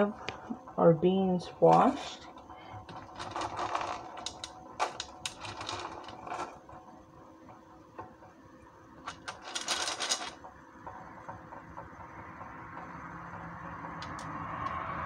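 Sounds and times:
beans rattling in metal strainer: 1.4 - 6.8, 9.1 - 10.4.

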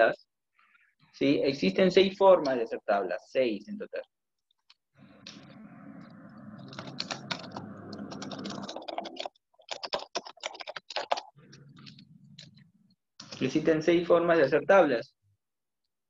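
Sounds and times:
steady low hum: 5.0 - 9.0
keyboard typing clicks: 6.6 - 12.6.

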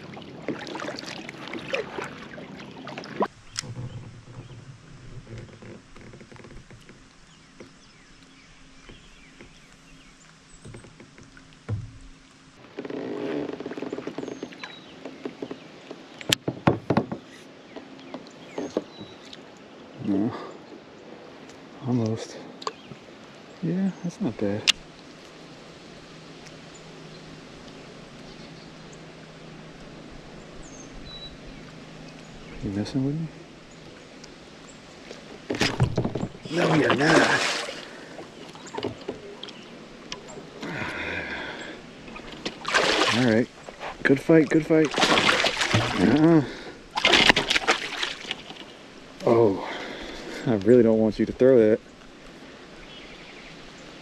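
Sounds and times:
faint bird chirps: 30.4 - 34.9.

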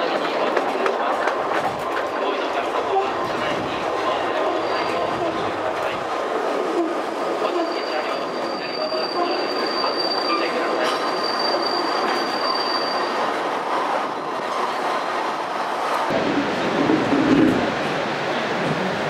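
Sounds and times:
train running on track: 0.0 - 19.0
high wheel squeal: 4.3 - 5.4, 7.4 - 13.3.

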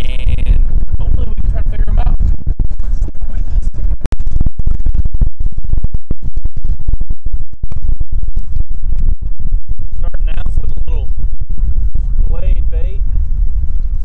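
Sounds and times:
low rumbling noise with crackling: 0.0 - 14.0.

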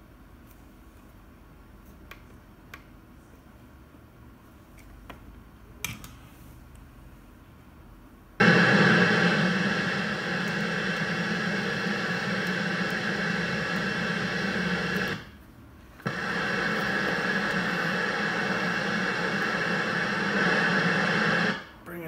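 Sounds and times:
radio static hiss: 8.4 - 15.4, 16.0 - 22.0.

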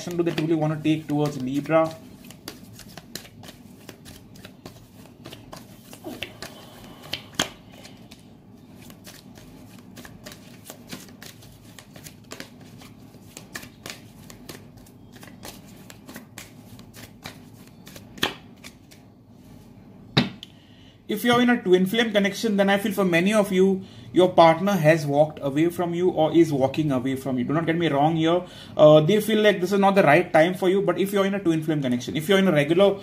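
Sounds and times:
cards being shuffled: 0.0 - 19.0.

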